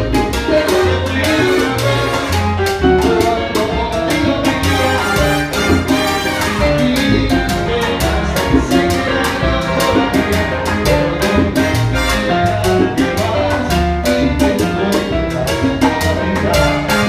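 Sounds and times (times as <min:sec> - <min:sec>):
salsa band playing: 0:00.0 - 0:17.0
trombones holding notes: 0:00.5 - 0:12.8, 0:16.4 - 0:17.0.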